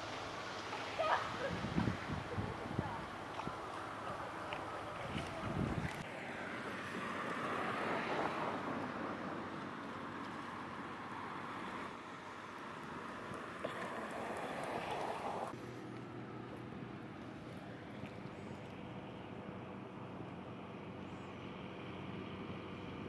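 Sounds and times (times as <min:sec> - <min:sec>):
outdoor hiss: 0:00.0 - 0:04.8
distant ferry engine drone: 0:00.0 - 0:23.0.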